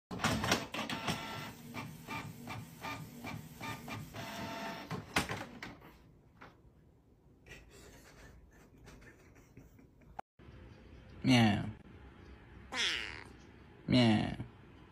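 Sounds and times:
inkjet printer whirring and clacking: 0:00.1 - 0:05.1.

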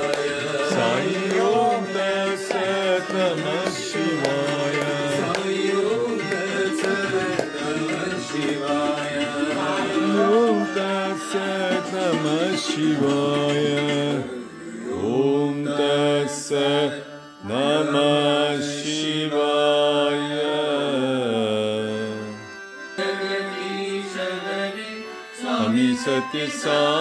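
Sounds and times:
steady accompaniment: 0:00.0 - 0:20.8
group chanting on television: 0:00.0 - 0:21.9.

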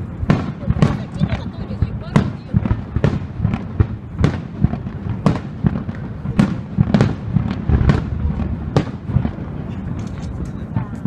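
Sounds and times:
fireworks booming: 0:00.0 - 0:11.0.

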